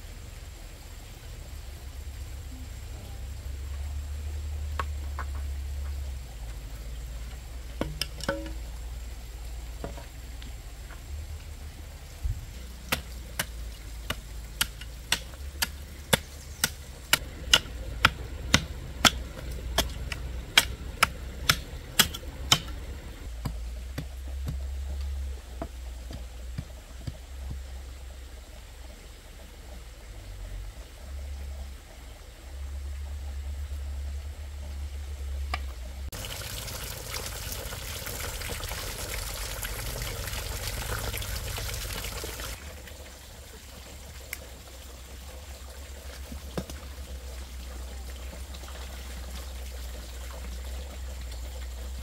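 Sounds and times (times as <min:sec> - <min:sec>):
steady low rumble: 0:08.5 - 0:43.1
sharp evenly spaced knocks: 0:12.9 - 0:24.7.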